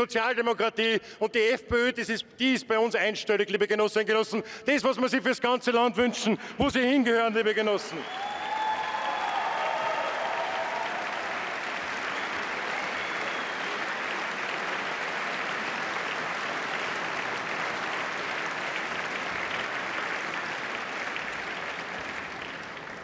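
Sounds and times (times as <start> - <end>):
audience applauding: 7.9 - 23.0.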